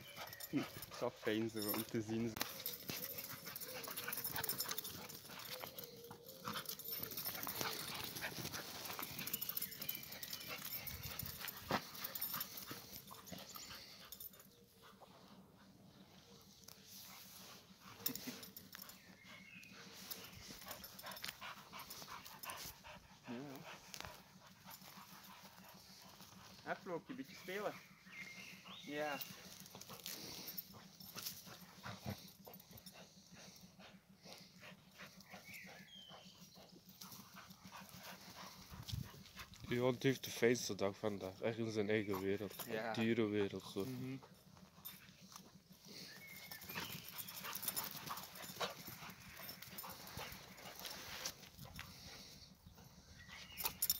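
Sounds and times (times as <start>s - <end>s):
dogs scuffling and playing: 0.0s - 15.1s, 16.0s - 27.6s, 28.6s - 53.9s
dogs scuffling: 0.1s - 13.7s, 43.5s - 52.0s
dog whining: 2.4s - 11.3s.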